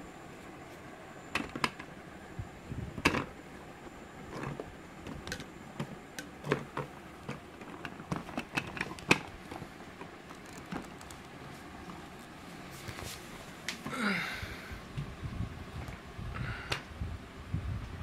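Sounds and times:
plastic parts clicking and knocking: 1.3s - 1.9s, 3.0s - 3.3s, 4.3s - 11.3s.

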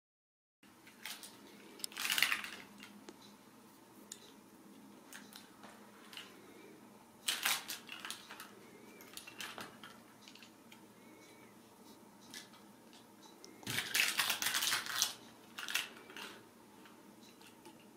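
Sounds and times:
faint steady hum: 0.6s - 17.9s
cat toy clicks and rustles: 0.8s - 3.0s, 7.2s - 10.5s, 13.6s - 17.9s.

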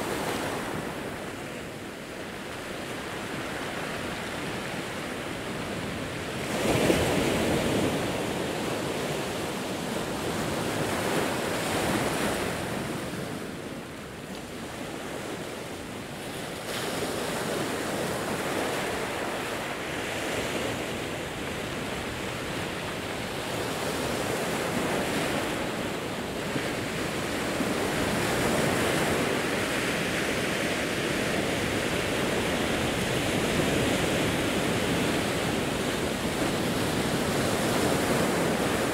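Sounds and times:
waves breaking on rocky shore: 14.5s - 38.9s.

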